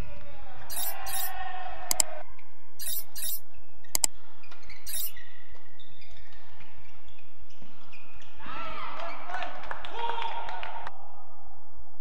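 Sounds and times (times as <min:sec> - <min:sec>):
shoes squeaking on court floor: 0:00.7 - 0:01.3, 0:02.8 - 0:03.4, 0:04.4 - 0:06.4.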